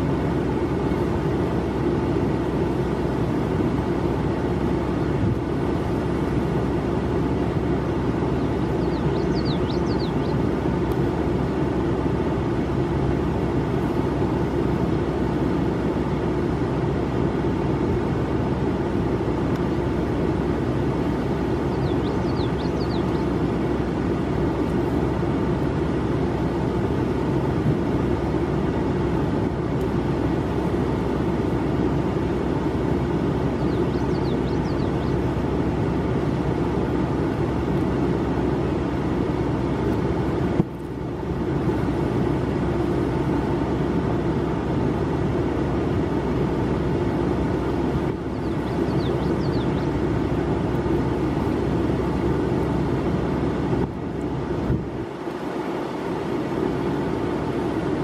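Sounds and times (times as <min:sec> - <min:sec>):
faint hum: 0:00.0 - 0:58.0
vehicle engine rumbling: 0:00.0 - 0:58.0
bird chirping: 0:08.2 - 0:10.5, 0:21.5 - 0:23.5, 0:33.4 - 0:35.4, 0:48.1 - 0:50.1.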